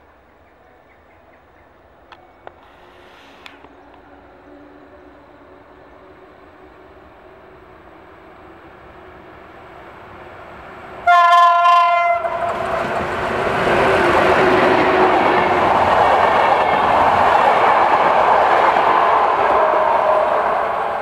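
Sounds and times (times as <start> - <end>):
train passing at speed: 0.6 - 21.0
locomotive horn: 11.0 - 12.7, 18.9 - 20.9
wheel-on-rail clickety-clack: 11.8 - 20.2.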